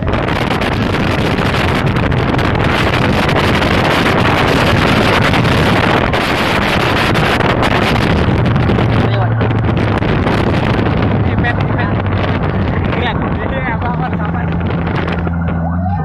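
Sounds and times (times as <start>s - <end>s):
low engine hum: 0.0s - 16.0s
wind rushing over microphone: 0.0s - 16.0s.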